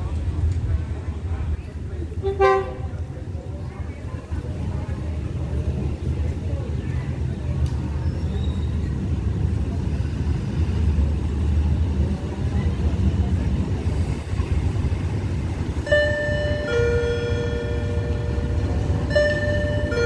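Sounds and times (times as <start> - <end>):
diesel railcar engine rumble: 0.0 - 20.0
two-tone train horn: 2.2 - 3.0, 15.9 - 20.0.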